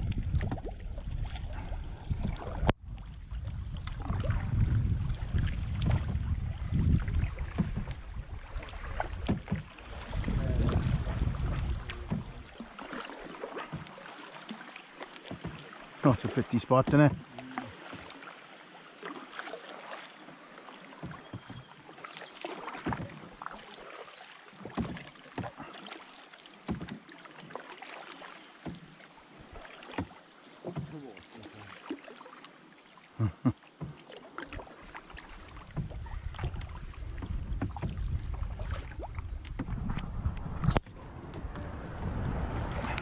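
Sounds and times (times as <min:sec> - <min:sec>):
wind rumble on microphone: 0:00.0 - 0:12.6, 0:35.7 - 0:43.0
canoe paddles splashing in water: 0:00.0 - 0:43.0.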